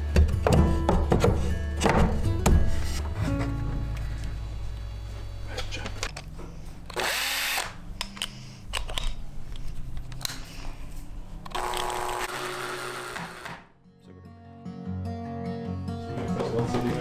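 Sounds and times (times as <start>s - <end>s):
cordless drill motor whining: 6.9s - 7.8s, 11.5s - 13.6s.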